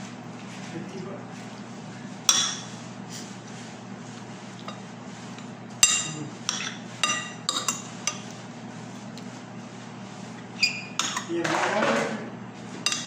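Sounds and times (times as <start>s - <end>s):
metal spoon clinking on dishes: 5.8s - 8.2s, 11.0s - 11.3s.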